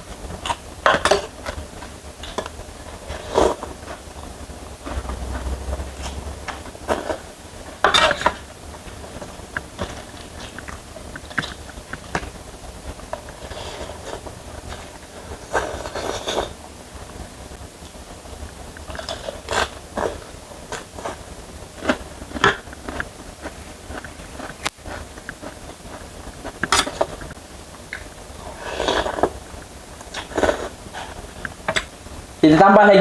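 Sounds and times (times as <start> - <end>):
low steady hum: 0.0 - 33.0
slurping and chewing noodles: 0.4 - 4.1, 13.1 - 16.6, 18.8 - 31.5.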